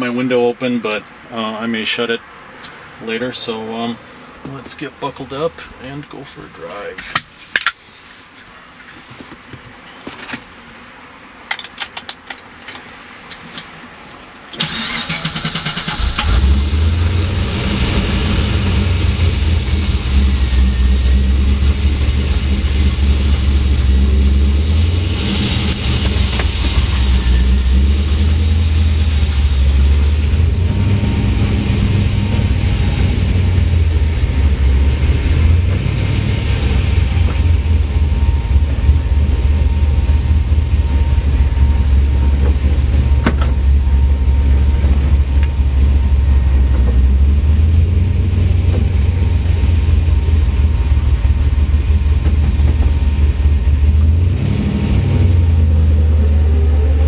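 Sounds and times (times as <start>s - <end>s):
car engine starting and running: 14.5s - 57.0s.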